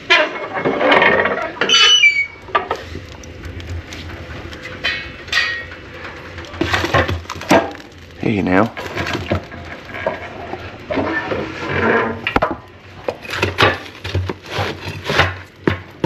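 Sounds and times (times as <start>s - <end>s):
short high squeak: 1.6s - 2.4s
metal clanks of iron stove doors: 4.8s - 5.8s.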